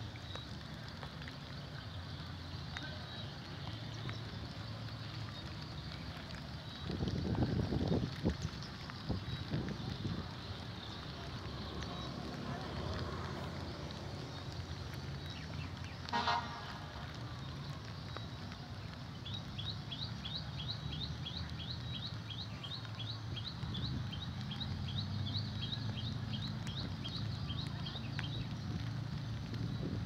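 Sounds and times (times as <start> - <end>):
vehicle horn honk: 16.1 - 17.0.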